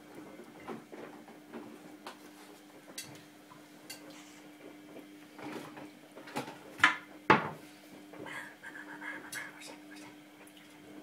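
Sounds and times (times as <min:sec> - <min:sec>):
faint steady hum: 0:07.4 - 0:11.0.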